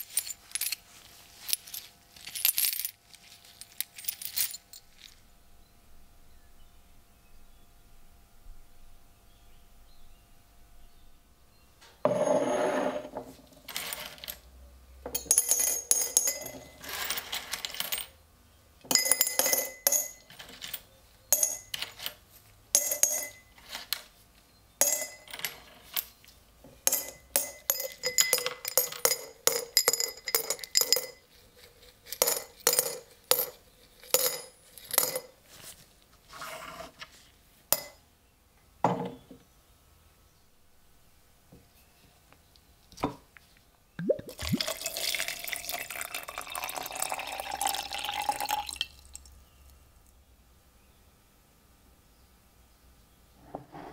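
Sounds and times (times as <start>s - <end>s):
coins clinking into glass jar: 0.0s - 5.2s, 13.7s - 14.4s, 15.2s - 18.2s, 18.9s - 24.0s, 24.8s - 26.2s, 26.8s - 31.4s, 32.0s - 35.4s.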